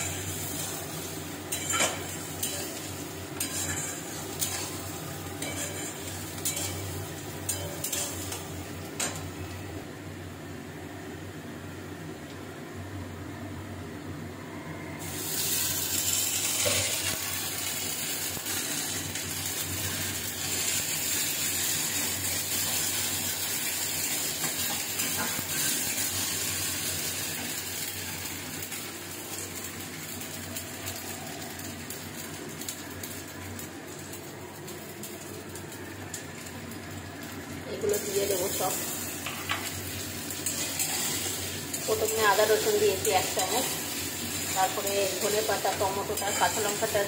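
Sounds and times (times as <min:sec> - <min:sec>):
paste sizzling in hot oil: 0:00.0 - 0:08.6, 0:15.0 - 0:33.1, 0:37.7 - 0:47.0
spatula scraping a wok: 0:01.5 - 0:04.8, 0:05.4 - 0:08.3.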